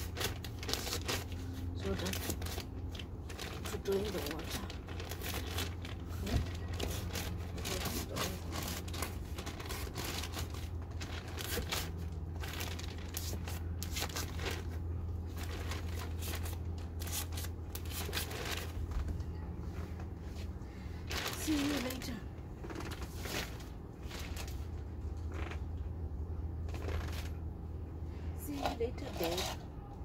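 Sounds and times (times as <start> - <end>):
plastic bag crinkling: 0.0 - 19.0, 21.0 - 25.6
steady low hum: 0.0 - 30.0.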